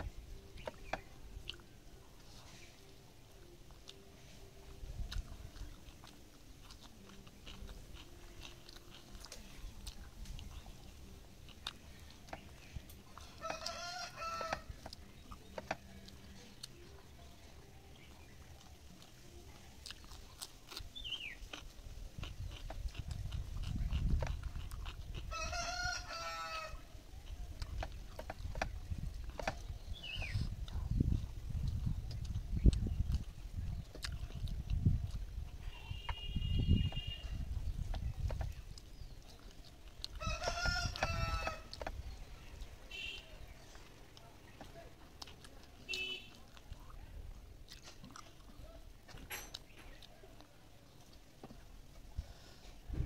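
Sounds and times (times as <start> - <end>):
person chewing food: 0.0 - 52.8
rooster crowing: 13.4 - 14.7, 25.3 - 26.8, 40.2 - 41.7
small bird chirping: 19.8 - 25.2, 28.4 - 43.9
mouth clicks and smacks: 19.8 - 25.4, 27.2 - 40.2.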